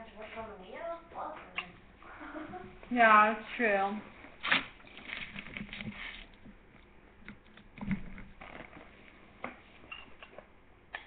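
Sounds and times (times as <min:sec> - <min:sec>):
soft eating and handling noises: 0:04.0 - 0:11.0.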